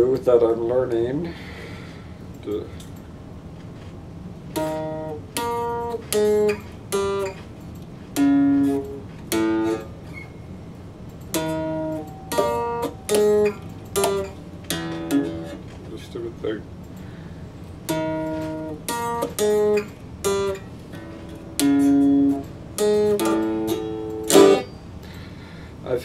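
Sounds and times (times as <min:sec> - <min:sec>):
electric guitar riff: 0:04.5 - 0:07.4, 0:08.1 - 0:10.2, 0:11.3 - 0:15.7, 0:17.9 - 0:25.1.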